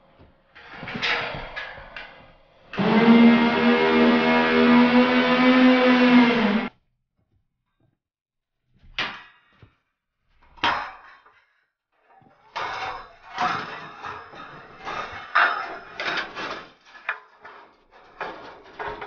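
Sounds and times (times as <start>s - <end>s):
steel saw blades clattering: 12.5s - 19.0s.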